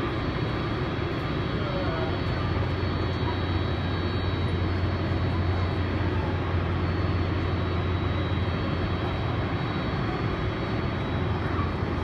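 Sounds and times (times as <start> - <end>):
jet engines idling: 0.0 - 12.0.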